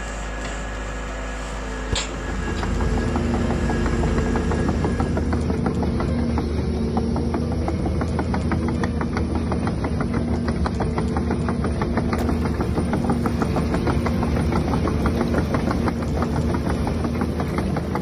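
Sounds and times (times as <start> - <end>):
simulated diesel engine idling: 10.2 - 18.0.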